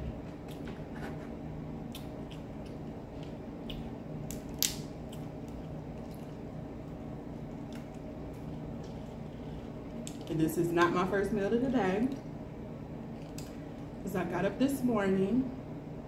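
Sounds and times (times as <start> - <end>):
low steady hum: 0.0 - 16.0
crab shells cracking: 4.2 - 6.3.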